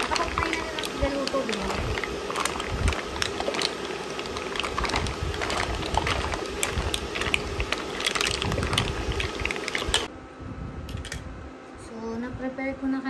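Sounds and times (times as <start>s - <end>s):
hot pan hissing: 0.0s - 10.1s
mussel shells clattering in pan: 0.0s - 10.1s.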